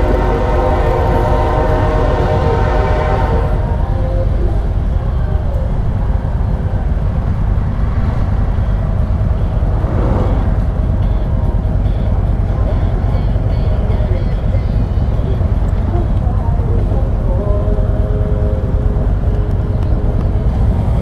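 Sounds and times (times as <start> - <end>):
horn-like chord: 0.0 - 3.6
motorcycle engine rumbling: 0.0 - 21.0.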